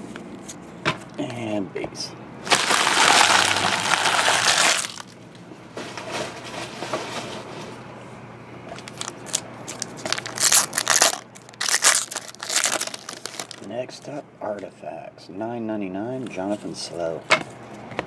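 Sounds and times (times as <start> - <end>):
foil pack tearing: 2.4 - 5.2, 8.8 - 13.7
foil wrapper crinkling: 2.4 - 5.2, 8.8 - 13.7.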